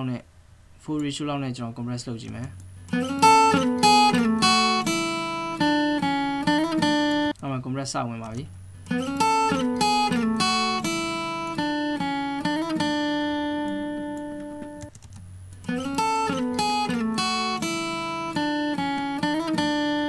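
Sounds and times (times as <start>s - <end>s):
plucked guitar phrase: 2.7s - 7.3s, 8.6s - 14.9s, 15.5s - 20.0s.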